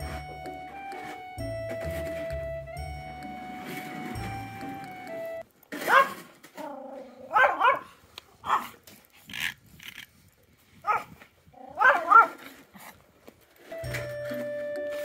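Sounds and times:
dog barking sharply: 0:05.8 - 0:06.2, 0:07.3 - 0:08.7, 0:11.8 - 0:12.4.

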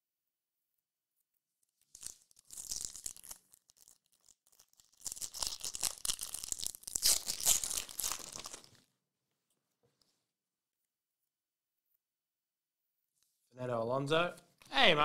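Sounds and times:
foil wrapper crinkling and tearing: 0:01.8 - 0:08.9.

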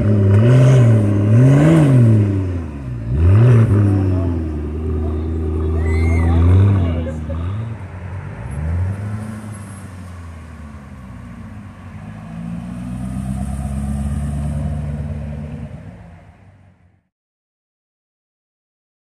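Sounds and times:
car engine driving past: 0:01.8 - 0:16.5.

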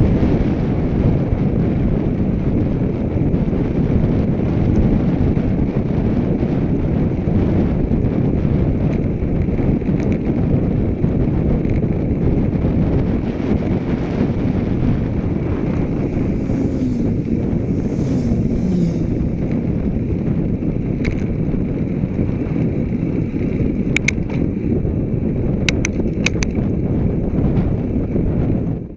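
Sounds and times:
road noise: 0:00.0 - 0:28.9
wind rush on microphone: 0:00.0 - 0:28.9
motorcycle passing: 0:12.2 - 0:25.5
sharp clicks: 0:24.0 - 0:24.4, 0:25.7 - 0:26.6.

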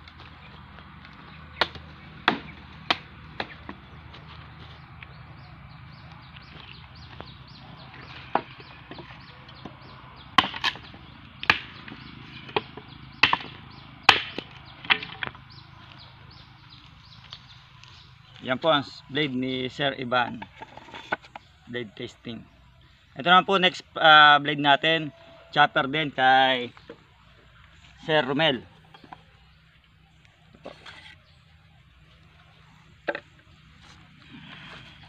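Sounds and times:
blade chopping into wood: 0:01.6 - 0:03.8, 0:10.4 - 0:15.2.

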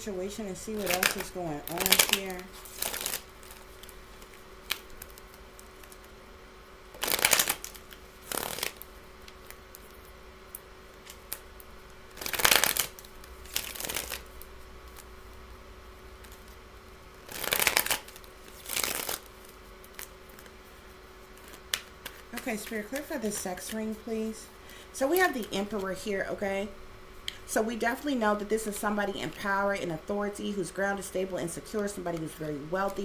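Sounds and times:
cards being shuffled: 0:00.8 - 0:06.1, 0:07.0 - 0:10.1, 0:12.1 - 0:15.4, 0:17.2 - 0:20.6, 0:21.3 - 0:24.0.

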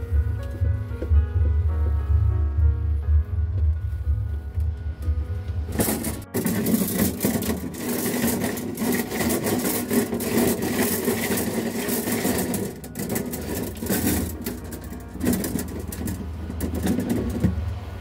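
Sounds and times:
copper tubing rattling on sheet metal: 0:05.7 - 0:18.0.

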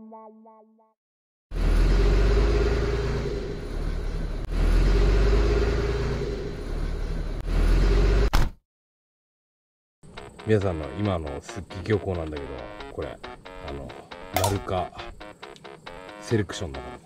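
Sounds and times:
car engine rumbling: 0:01.5 - 0:08.3.

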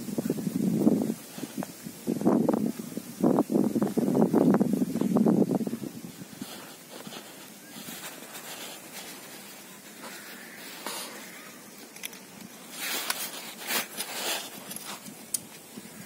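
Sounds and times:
trowel scraping stony soil: 0:06.2 - 0:16.0.

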